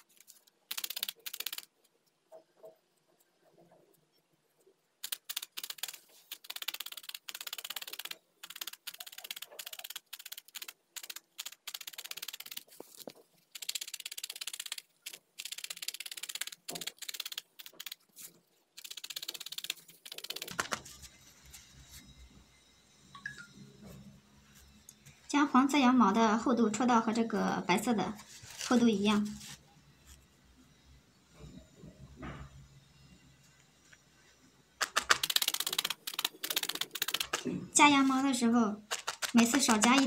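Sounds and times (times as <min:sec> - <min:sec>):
felting needle ticking into foam: 0:00.7 - 0:02.2, 0:05.0 - 0:18.1, 0:18.8 - 0:21.0, 0:34.8 - 0:37.5, 0:38.9 - 0:40.0.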